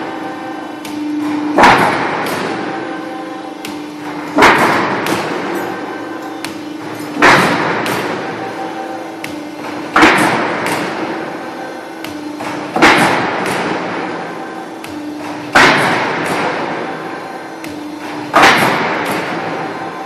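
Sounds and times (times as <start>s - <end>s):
steady hum: 0.0s - 20.0s
press stamping sheet metal bang: 0.9s - 8.6s, 9.2s - 19.9s.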